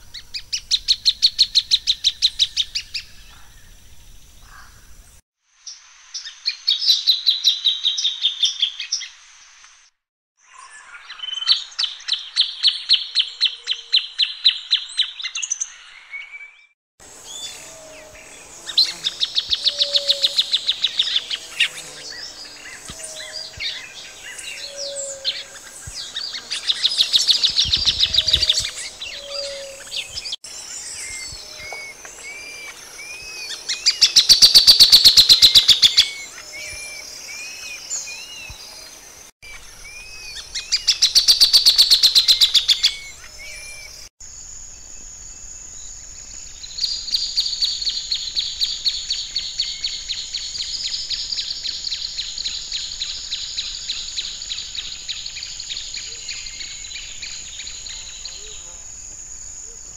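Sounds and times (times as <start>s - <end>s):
bird single call notes: 17.3s - 38.9s.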